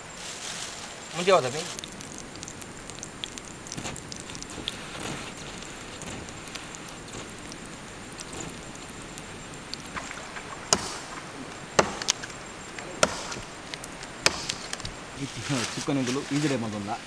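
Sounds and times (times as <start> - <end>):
faint background hiss: 0.0 - 17.0
blade chopping on wood: 10.0 - 11.2, 11.8 - 12.2, 13.0 - 13.5, 14.2 - 14.8.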